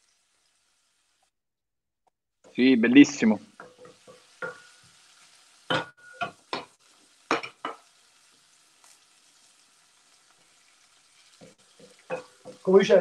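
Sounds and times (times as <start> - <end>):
oil sizzling in pan: 0.0 - 1.4, 2.4 - 13.0
spoon knocking against pan: 3.5 - 4.9, 5.7 - 7.9, 11.4 - 12.6.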